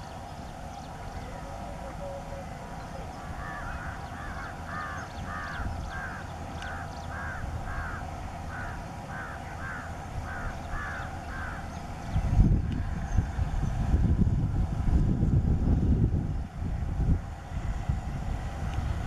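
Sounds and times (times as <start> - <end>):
distant locomotive engine rumble: 0.0 - 19.0
bird calling harshly: 1.1 - 11.7.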